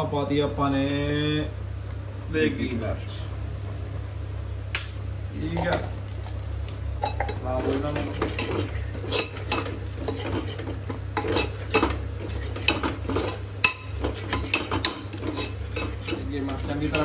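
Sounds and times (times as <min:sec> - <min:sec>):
low steady hum: 0:00.0 - 0:17.0
metal spoon scraping pot: 0:07.0 - 0:17.0.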